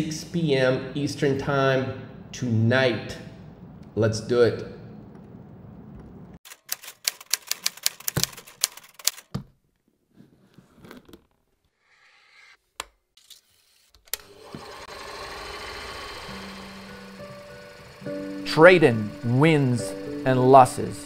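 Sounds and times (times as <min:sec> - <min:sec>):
film projector clicks and clacks: 0:06.5 - 0:09.3, 0:14.0 - 0:21.0
projector whirring: 0:14.1 - 0:21.0.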